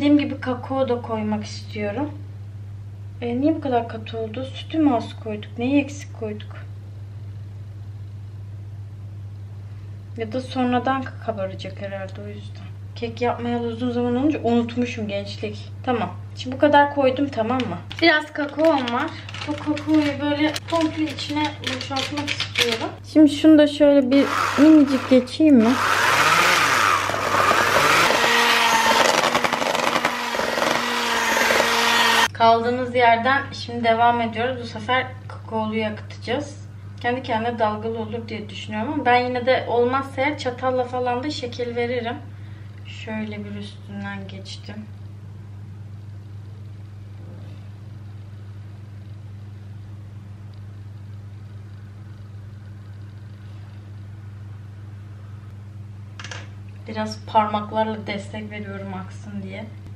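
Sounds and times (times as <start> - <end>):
kitchen appliance humming: 17.6 - 32.3
electric hand mixer whisking: 24.1 - 32.3.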